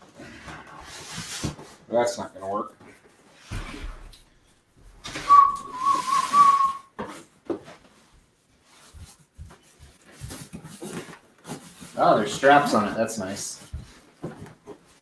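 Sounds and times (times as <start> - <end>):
cardboard scraping and rustling: 8.8 - 15.0.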